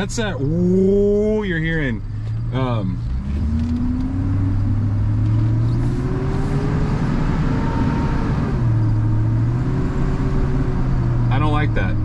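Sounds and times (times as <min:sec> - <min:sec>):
truck engine revving: 0:02.5 - 0:12.0.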